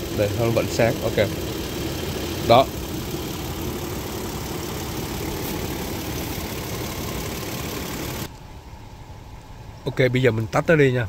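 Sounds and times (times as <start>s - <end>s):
truck engine idling: 0.0s - 9.8s.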